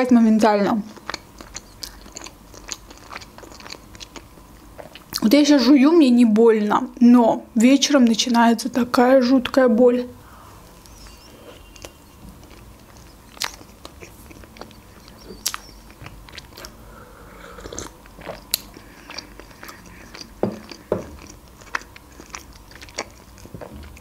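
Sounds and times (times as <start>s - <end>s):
chewing: 0.9s - 5.2s, 10.7s - 24.0s
lip and tongue smacks: 11.7s - 16.8s, 17.6s - 23.8s.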